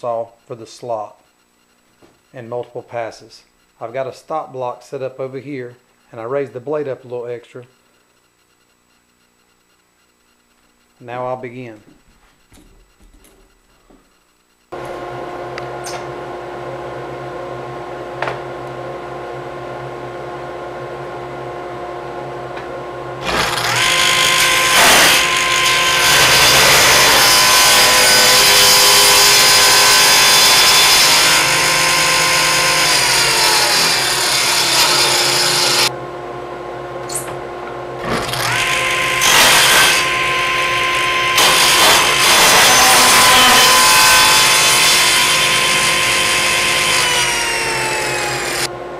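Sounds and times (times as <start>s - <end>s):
table saw motor hum: 14.7s - 48.9s
saw blade cutting wood: 23.2s - 35.9s, 38.0s - 48.7s.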